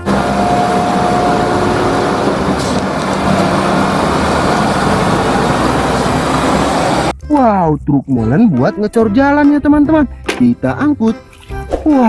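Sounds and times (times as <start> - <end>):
truck diesel engine running: 0.0 - 7.1
road noise: 0.0 - 7.2.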